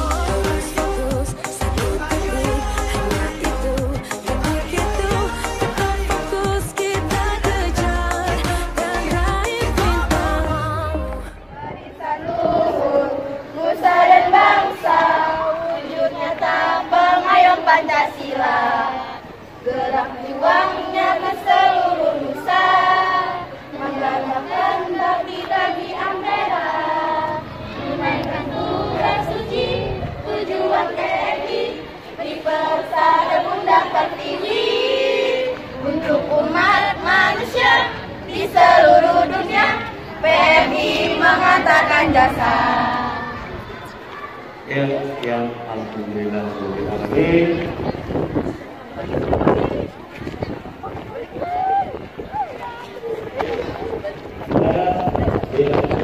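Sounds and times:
girls singing together: 0.0 - 44.0.

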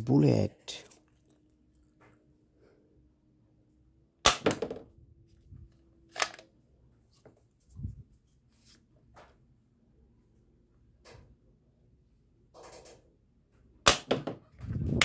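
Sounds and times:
plastic toy rifle cocking: 6.1 - 6.4.

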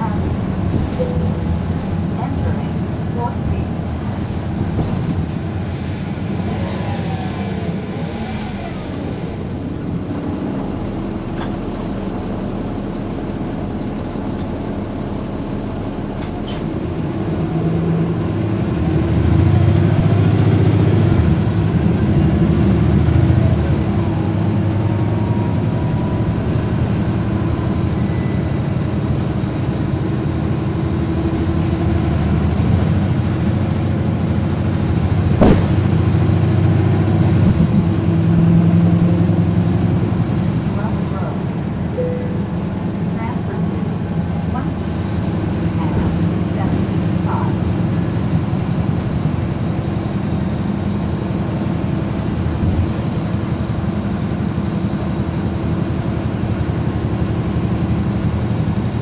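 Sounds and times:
bus diesel engine running: 0.0 - 59.0
sharp knock: 35.4 - 35.8.

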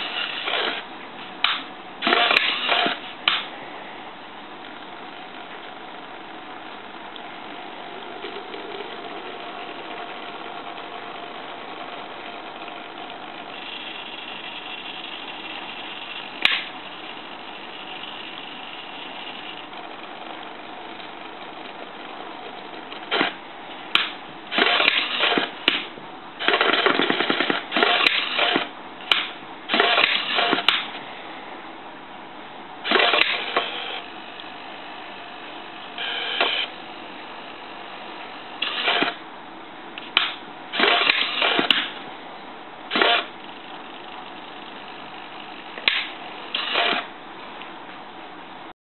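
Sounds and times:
small motors buzzing and rattling: 7.9 - 19.8.

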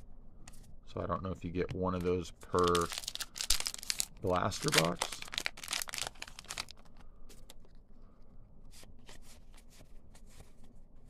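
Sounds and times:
foil wrapper crinkling and tearing: 2.5 - 7.0.

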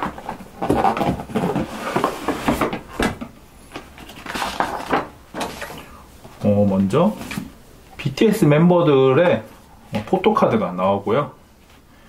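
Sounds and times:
cardboard box flaps scraping: 0.1 - 2.8.

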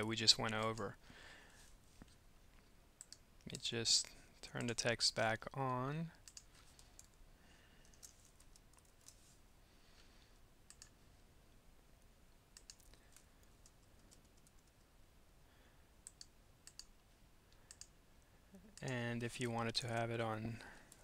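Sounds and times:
keyboard and mouse clicks: 0.5 - 0.9, 5.7 - 7.2, 7.8 - 9.2, 10.7 - 11.0, 12.6 - 14.9, 16.0 - 16.9, 17.5 - 17.9.

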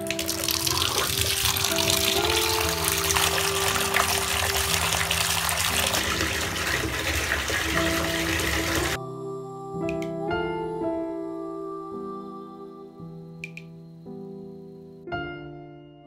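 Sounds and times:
water gushing from tap into bathtub: 0.0 - 9.0
soft background music: 0.0 - 16.0.

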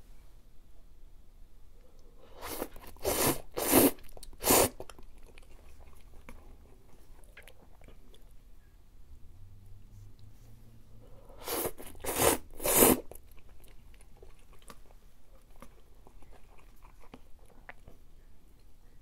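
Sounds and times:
quiet chewing: 1.8 - 8.8, 11.2 - 19.0
person slurping noodles: 2.3 - 4.8, 11.3 - 13.2.

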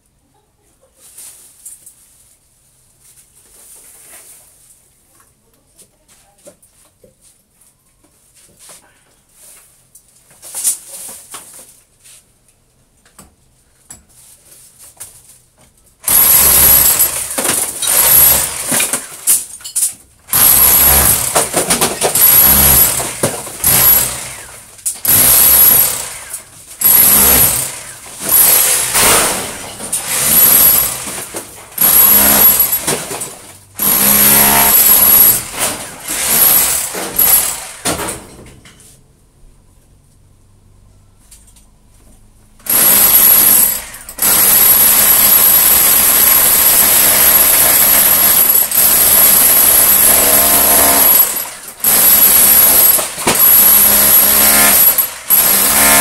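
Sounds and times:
power tool whining: 16.0 - 19.4, 20.3 - 38.0, 42.6 - 56.0.

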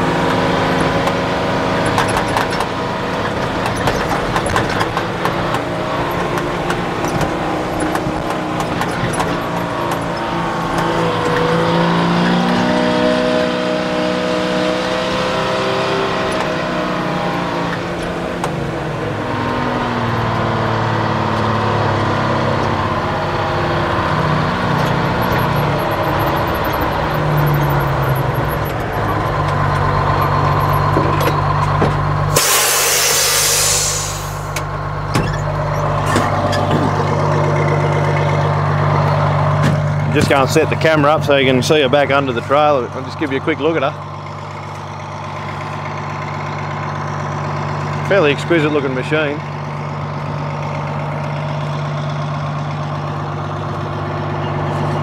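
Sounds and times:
diesel truck engine changing gear: 0.0 - 55.0
air brakes hissing: 32.3 - 34.7.

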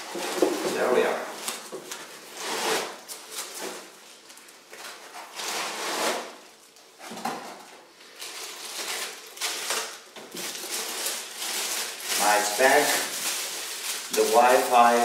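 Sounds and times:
plastic wrapping rustling: 0.0 - 15.0
foam scraping against cardboard box: 2.3 - 3.0, 5.2 - 6.4.

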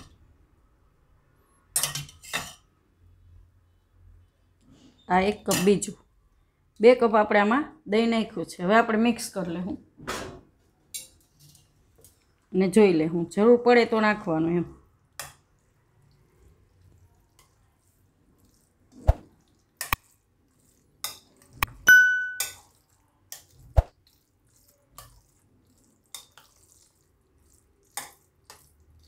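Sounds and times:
spoon squelching in rice: 15.6 - 29.0
spoon knocking on glass bowl: 21.8 - 22.6.

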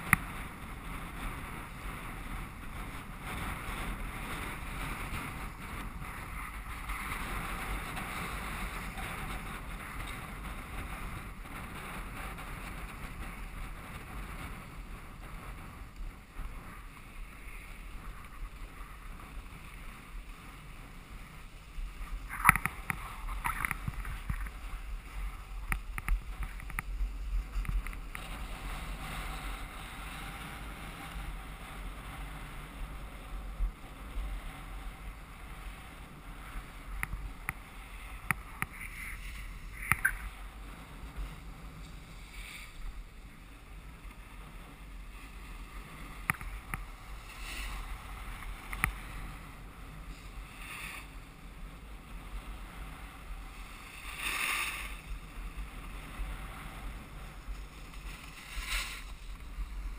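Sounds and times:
wind rumbling on microphone: 0.0 - 59.9
skis hissing on snow: 41.3 - 43.2, 44.9 - 49.4, 50.0 - 51.2, 52.4 - 59.9.

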